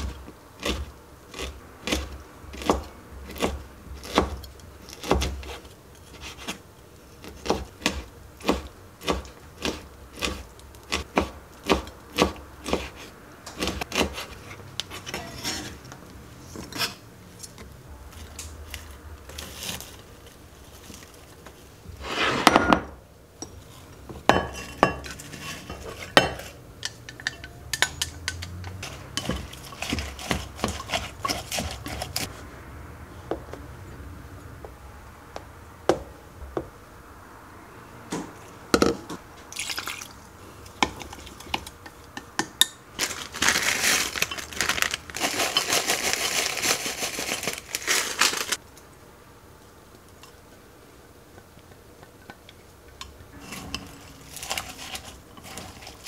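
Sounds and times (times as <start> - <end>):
knife scrape: 12.6 - 15.9, 16.5 - 17.0, 22.0 - 22.8, 24.6 - 26.6, 28.8 - 32.4, 53.4 - 56.0.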